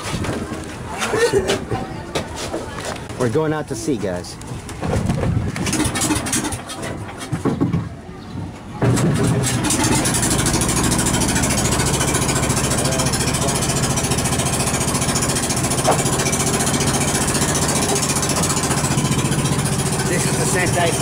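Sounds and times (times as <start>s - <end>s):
boat engine running: 8.8s - 21.0s.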